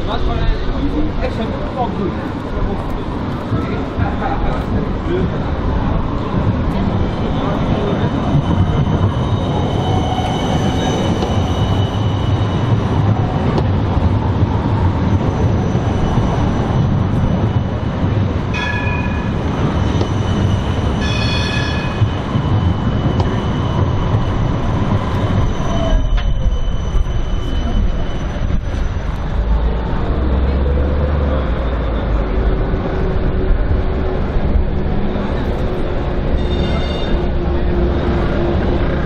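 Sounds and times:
high squeal from rails: 0.0 - 39.0
tram wheels rumbling: 0.0 - 39.0
tram whine slowing: 0.0 - 39.0
tram bell rings: 15.5 - 30.1, 35.8 - 39.0.

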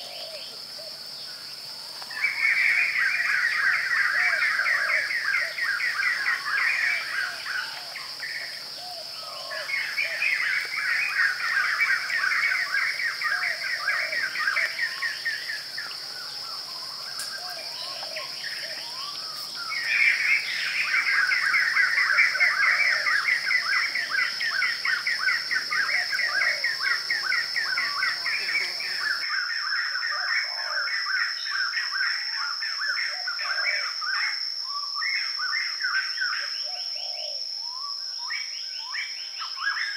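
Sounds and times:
birds chirping: 0.0 - 29.3
high-pitched insect drone: 0.0 - 39.9.

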